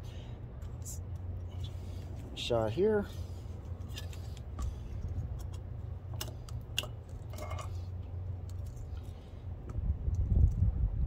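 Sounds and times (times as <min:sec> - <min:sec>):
low steady hum: 0:00.0 - 0:11.0
sharp metal clicks of grease coupler: 0:03.9 - 0:07.3.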